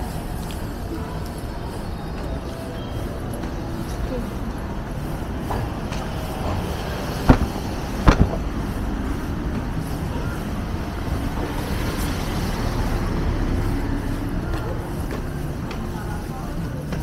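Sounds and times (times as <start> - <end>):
passing cars rumble: 3.1 - 15.9
sharp knocks: 7.3 - 8.5.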